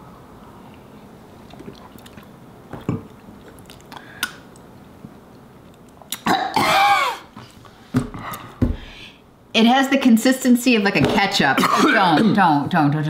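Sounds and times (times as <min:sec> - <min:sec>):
sipping and mouth noises: 0:00.7 - 0:06.4.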